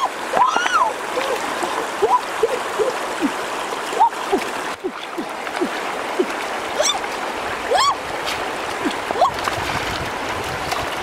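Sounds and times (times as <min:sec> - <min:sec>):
gurgling plinks: 0:00.0 - 0:08.0
rocky stream running: 0:00.0 - 0:11.0.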